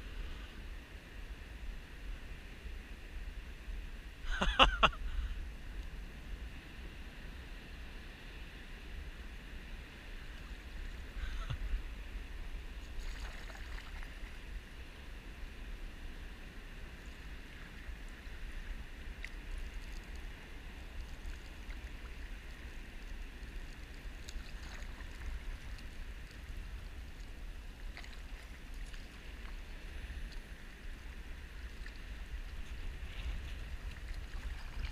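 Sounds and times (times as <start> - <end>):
wind rumble on microphone: 0.0 - 34.9
paddle drips and splashes: 12.8 - 14.4, 19.2 - 30.5, 31.5 - 34.9
water lapping against hull: 12.8 - 14.6, 17.4 - 34.9.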